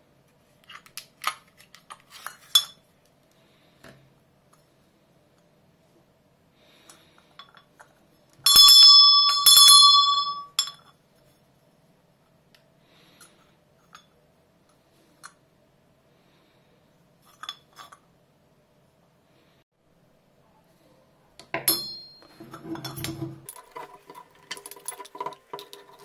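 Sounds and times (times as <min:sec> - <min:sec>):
brass hand bell ringing: 0:08.5 - 0:10.6.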